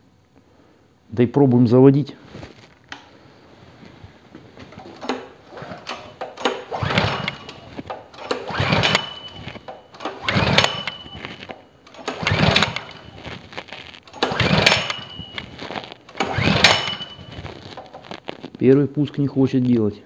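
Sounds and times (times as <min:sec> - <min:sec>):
petrol engine cranking: 0:04.7 - 0:18.2.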